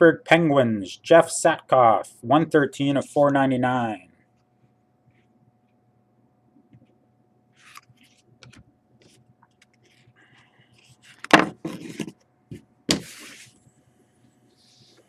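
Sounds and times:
cards clicking and sliding on table: 7.6s - 10.0s, 10.8s - 13.6s
sleeve brushing across table: 13.0s - 13.6s.

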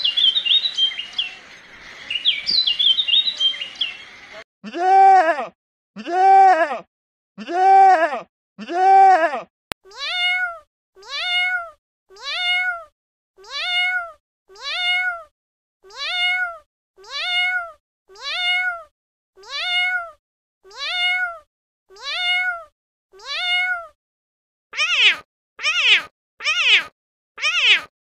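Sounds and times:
cat meowing: 0.0s - 1.4s, 9.9s - 24.0s, 24.8s - 27.9s.

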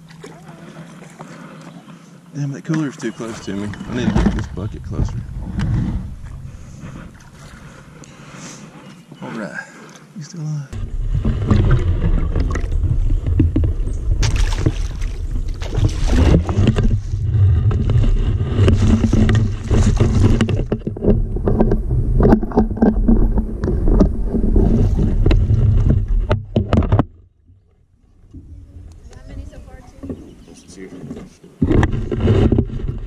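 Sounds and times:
boat motor humming: 0.0s - 33.0s
wind noise: 3.3s - 7.8s, 10.8s - 27.0s
rushing water: 10.7s - 21.5s.

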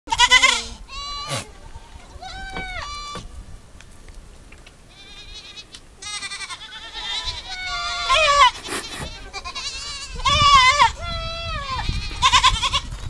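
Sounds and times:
goats bleating: 0.1s - 3.2s, 4.9s - 13.0s.

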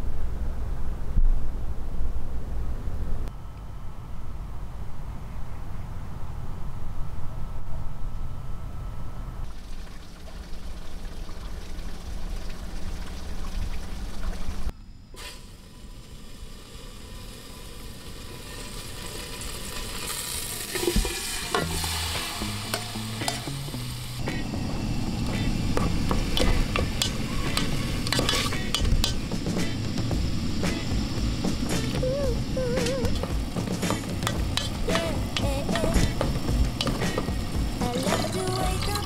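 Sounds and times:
low steady rumble: 0.0s - 18.4s, 21.6s - 39.0s
meat sizzling in a pot: 15.2s - 24.4s, 25.3s - 32.0s, 33.1s - 39.0s
wooden spoon scraping pot: 27.0s - 29.2s.

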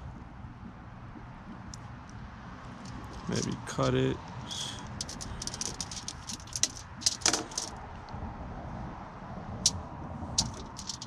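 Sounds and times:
aluminium foil crinkling: 4.9s - 7.7s, 10.4s - 11.0s.

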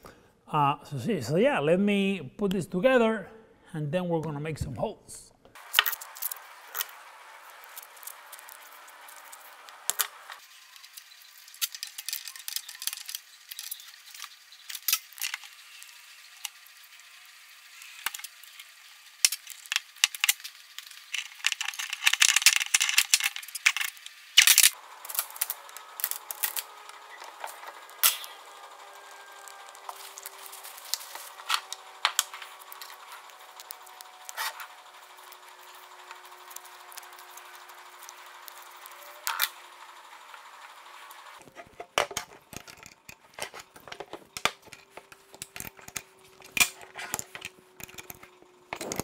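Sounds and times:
metal fittings clicking and rattling: 10.8s - 16.6s, 17.8s - 28.4s, 41.4s - 49.0s
scraping and clicking: 17.8s - 40.4s, 41.1s - 49.0s.

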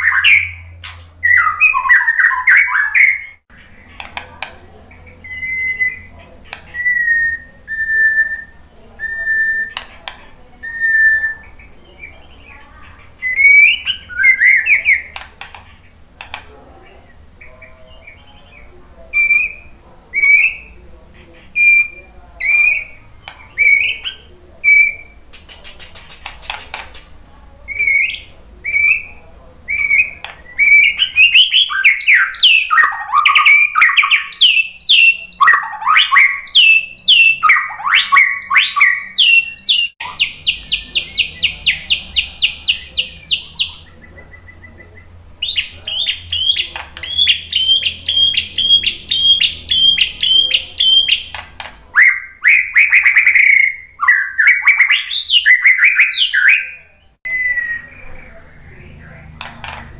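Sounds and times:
bird singing whistled phrases: 0.0s - 3.4s, 5.0s - 9.8s, 10.6s - 12.6s, 13.2s - 15.2s, 17.4s - 20.8s, 21.6s - 25.2s, 27.7s - 51.4s, 52.0s - 58.8s.

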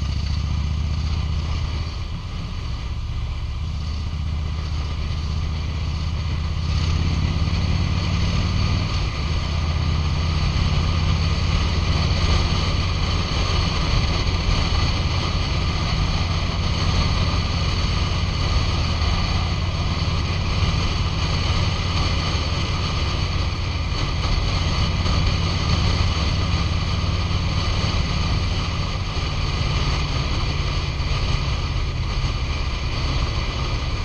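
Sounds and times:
motorcycle engine running: 0.0s - 34.0s
wind rush on microphone: 0.0s - 34.0s.

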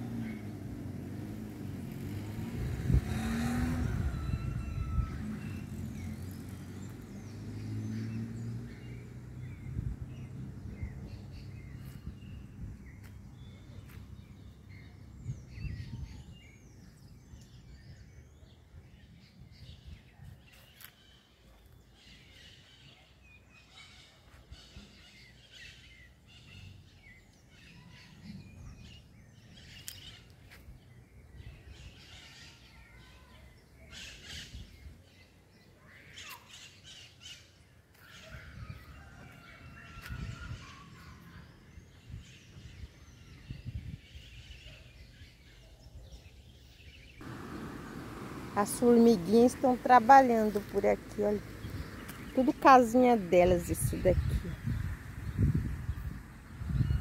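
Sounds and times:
vehicle passing: 0.0s - 12.6s, 47.2s - 57.0s
birds chirping: 0.0s - 57.0s
faint background traffic: 0.0s - 57.0s.

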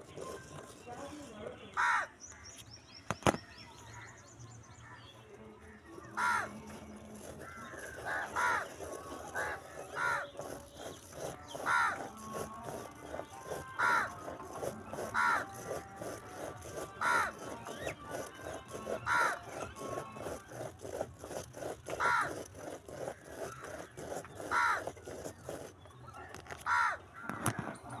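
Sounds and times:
pen ticking and scratching: 0.0s - 3.7s, 5.6s - 27.8s
bird calling: 5.7s - 16.0s.

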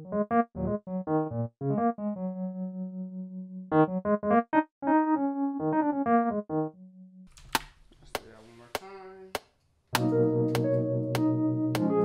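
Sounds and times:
piano notes and chords: 0.0s - 7.3s, 9.9s - 12.0s.

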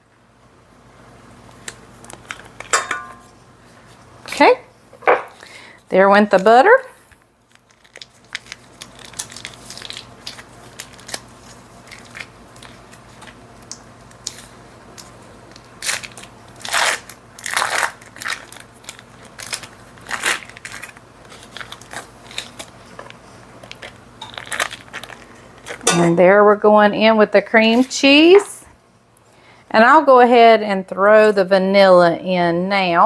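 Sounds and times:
foil wrapper crinkling: 1.5s - 2.8s, 7.4s - 25.9s.

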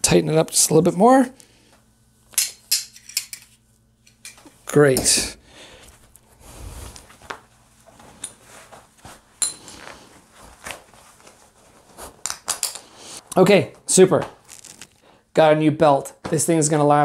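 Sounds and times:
nylon webbing rustling: 14.4s - 15.0s.

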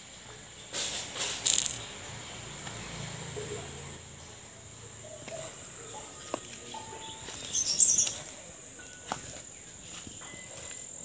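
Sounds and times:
sharp clicks: 1.4s - 1.8s
insect drone: 1.4s - 2.0s
bird chirps: 5.1s - 10.8s.

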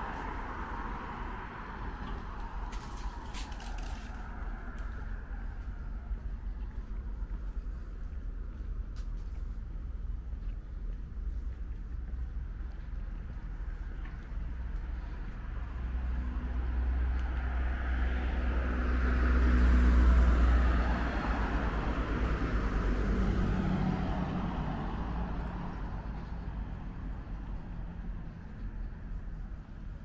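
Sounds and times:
car driving past: 15.4s - 28.1s.

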